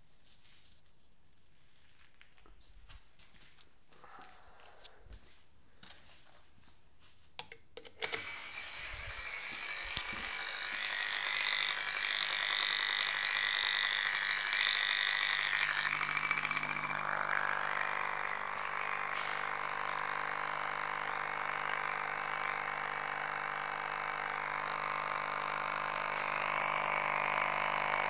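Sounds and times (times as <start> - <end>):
solenoid valve buzzing: 7.9 - 28.0.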